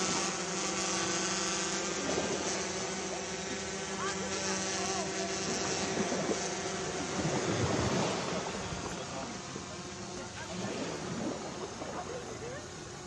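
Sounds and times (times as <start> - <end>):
mechanical drone: 0.0 - 13.0.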